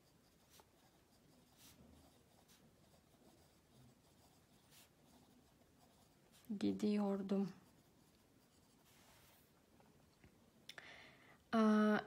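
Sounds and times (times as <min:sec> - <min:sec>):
pen scratching on paper: 0:00.0 - 0:09.5.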